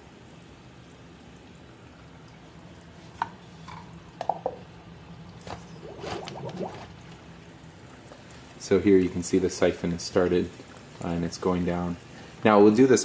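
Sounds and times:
low steady hum: 0.0s - 13.0s
water dripping and gurgling: 0.9s - 8.8s.

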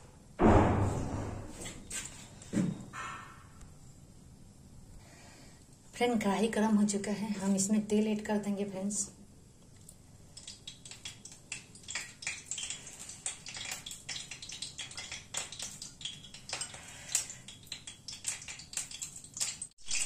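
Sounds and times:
oil crackling and popping: 9.6s - 20.0s.

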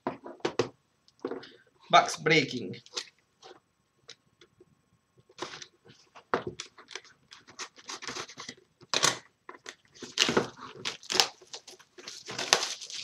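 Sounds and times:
packaging torn open by hand: 10.0s - 13.0s.

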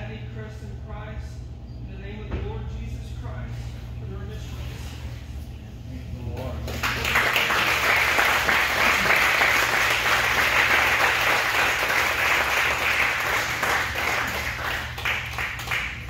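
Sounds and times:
people applauding: 6.6s - 16.0s.

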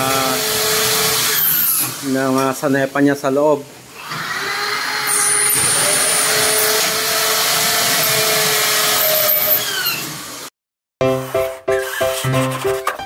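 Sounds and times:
electric drill drilling into metal: 0.0s - 2.2s, 4.0s - 10.5s.

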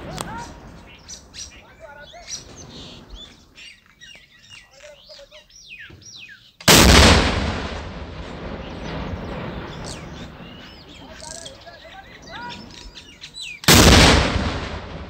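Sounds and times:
birds chirping: 0.0s - 15.0s
rocket launcher blast: 6.7s - 10.6s, 13.7s - 15.0s.

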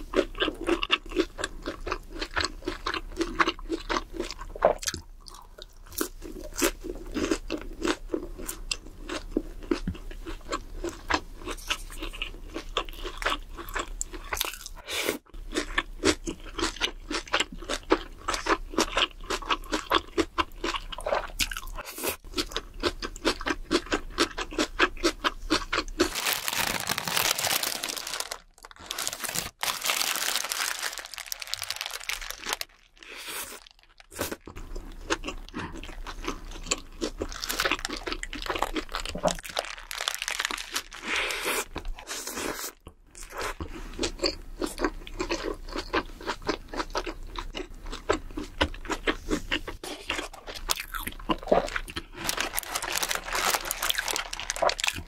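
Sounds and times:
crunchy bites and wet chewing: 15.5s - 55.0s.

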